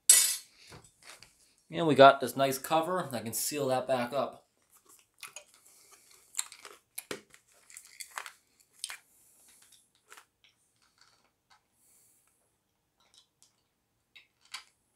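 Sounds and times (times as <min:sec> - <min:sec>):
hard candy crunching: 0:04.6 - 0:11.6, 0:13.0 - 0:14.8.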